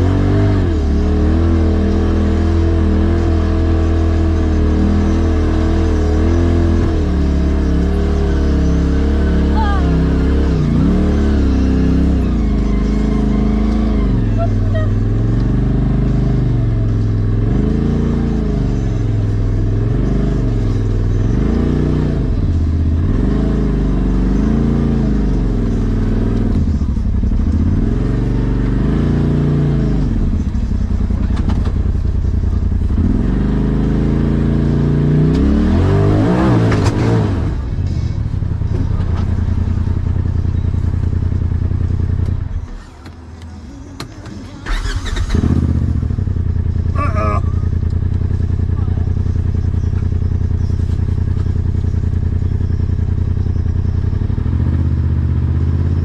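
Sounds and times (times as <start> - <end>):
engine revving: 0.0 - 56.0.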